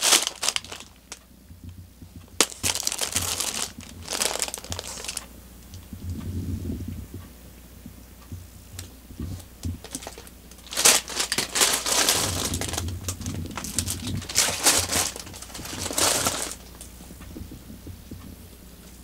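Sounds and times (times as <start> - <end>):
cats scuffling in fabric bed: 9.2 - 16.8.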